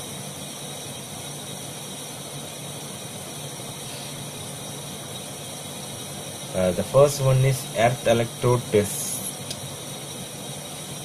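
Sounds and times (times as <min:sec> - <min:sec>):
background hiss: 0:06.5 - 0:09.6.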